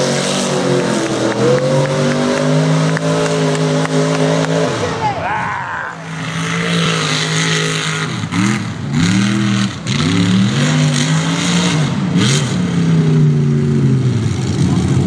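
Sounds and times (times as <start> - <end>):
truck engine revving: 0.0 - 15.0.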